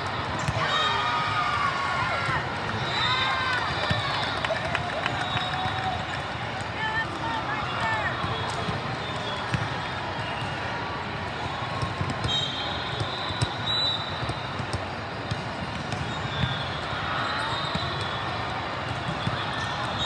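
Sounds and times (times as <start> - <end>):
volleyballs bouncing and struck: 8.2 - 20.0.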